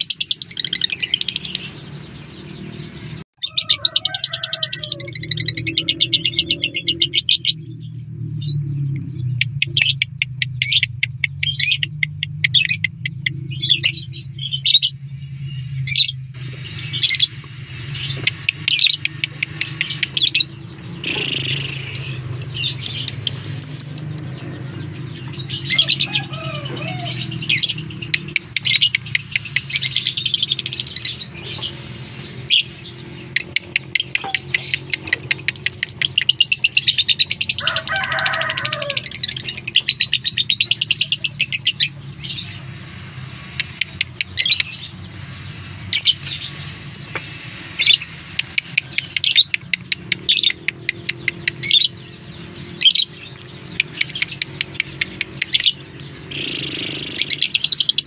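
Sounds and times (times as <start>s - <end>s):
lovebird chirping and trilling: 0.0s - 42.7s, 47.8s - 58.0s.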